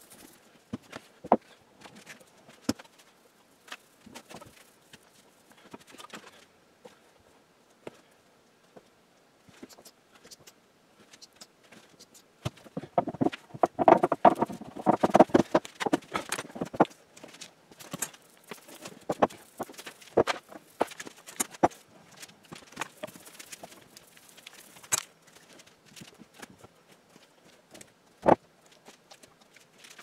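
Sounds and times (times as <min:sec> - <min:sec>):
wooden boards knocking and scraping: 0:12.5 - 0:16.9, 0:19.0 - 0:21.8.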